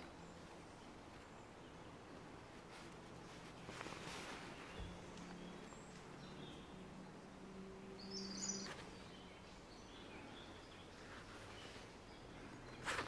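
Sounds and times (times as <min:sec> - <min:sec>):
low steady hum: 0:00.0 - 0:13.0
bird chirps: 0:07.8 - 0:13.0.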